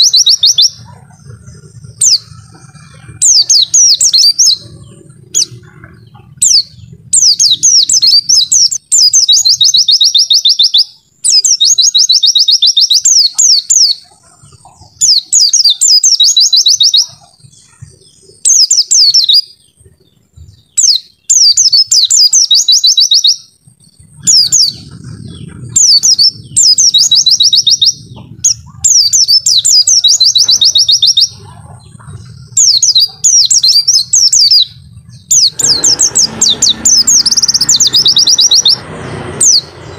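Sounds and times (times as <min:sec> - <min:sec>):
small bird singing with trills: 0:00.0 - 0:39.9.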